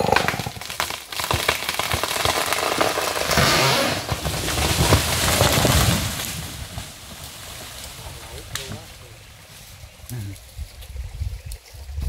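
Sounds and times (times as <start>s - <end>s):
wood cracking and snapping: 0.0s - 9.0s.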